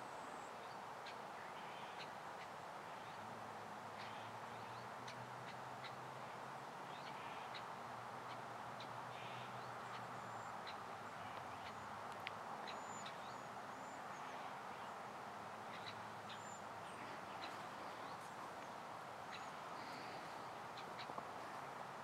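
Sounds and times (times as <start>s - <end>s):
faint outdoor hiss: 0.0s - 22.0s
small birds chirping: 8.3s - 22.0s.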